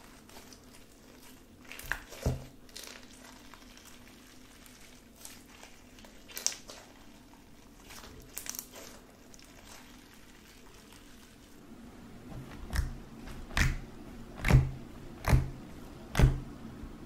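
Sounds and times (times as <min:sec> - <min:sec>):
slime squishing: 0:00.0 - 0:11.6, 0:12.3 - 0:16.5
slime crackles and pops: 0:05.2 - 0:06.9.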